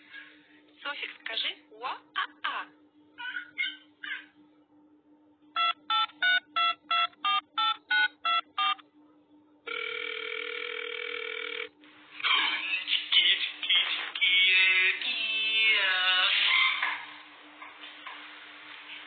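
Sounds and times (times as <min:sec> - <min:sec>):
keypad dialing beeps: 0:05.6 - 0:08.8
steady dial tone: 0:05.6 - 0:08.8, 0:09.7 - 0:11.8.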